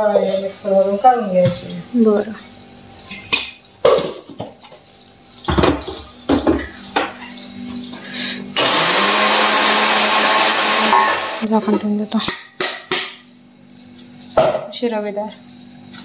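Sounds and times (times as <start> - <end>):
mixer grinder running: 7.7 - 11.6.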